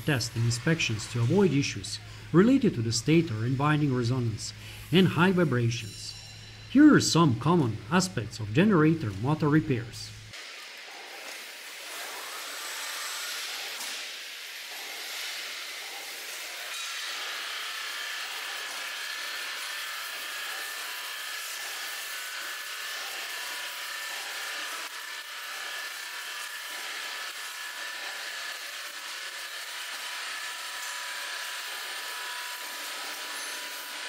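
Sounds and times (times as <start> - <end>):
machinery hiss: 0.0 - 7.1
faint machinery whine: 0.0 - 10.4.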